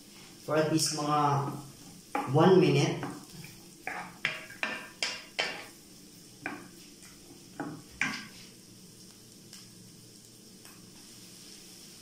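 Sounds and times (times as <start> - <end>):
vegetables sizzling: 0.0 - 12.0
spatula scraping frying pan: 3.4 - 5.7.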